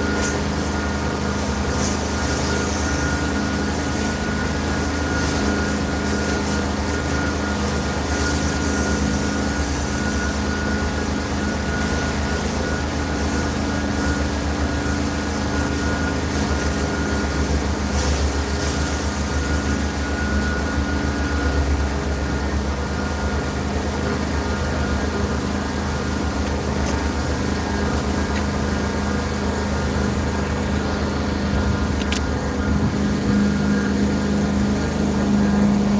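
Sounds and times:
carpet cleaning machine droning: 0:00.0 - 0:35.9
thin high whine: 0:00.0 - 0:35.9.

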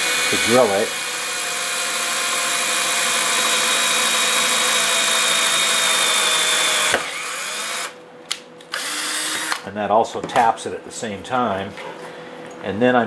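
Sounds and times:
cordless drill drilling metal: 0:00.0 - 0:08.0, 0:08.7 - 0:09.6.

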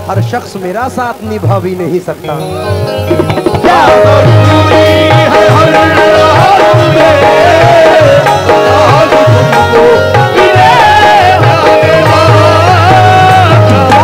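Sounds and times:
keyboard and harmonium melody: 0:00.0 - 0:14.0
hand drum beat: 0:02.8 - 0:14.0.

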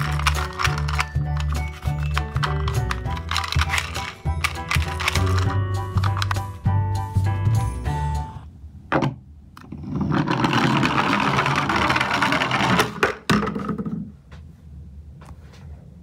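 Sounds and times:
toy truck whirring rattle: 0:00.0 - 0:05.5, 0:10.2 - 0:13.0.

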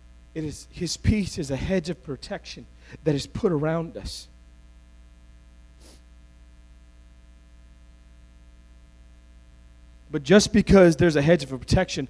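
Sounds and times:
electrical mains hum: 0:00.0 - 0:12.0
short breath: 0:02.8 - 0:03.0, 0:05.8 - 0:06.1.

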